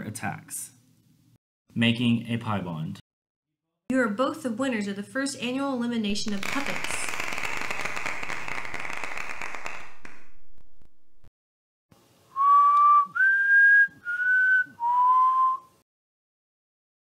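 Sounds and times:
person whistling: 12.4s - 15.8s.

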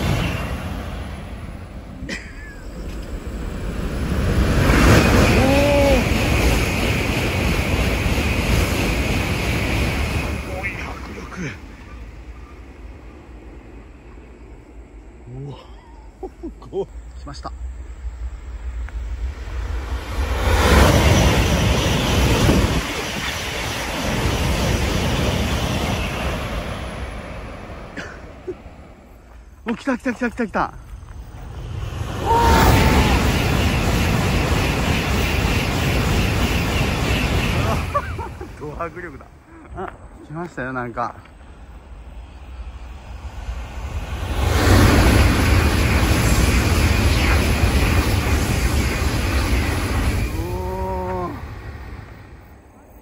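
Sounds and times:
high-speed train passing: 0.0s - 53.0s
rush of air and rail noise: 0.0s - 53.0s.

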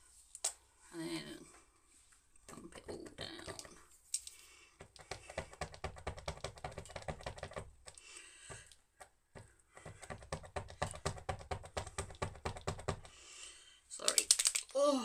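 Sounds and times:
paint pen plastic clicks: 14.0s - 14.7s.

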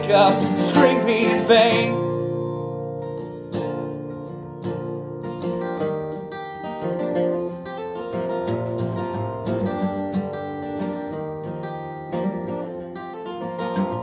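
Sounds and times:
person singing: 0.0s - 2.2s
acoustic guitar strumming: 0.0s - 14.0s.

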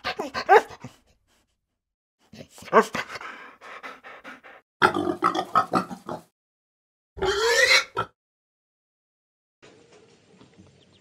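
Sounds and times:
pigs grunting: 4.0s - 6.3s, 7.2s - 8.2s
pig squealing: 7.2s - 8.2s.

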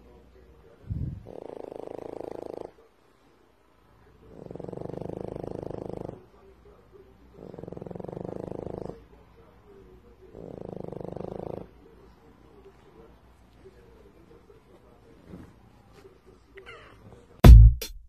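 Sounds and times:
pet snoring: 0.8s - 2.9s, 4.2s - 6.3s, 7.3s - 9.1s, 10.3s - 12.0s.

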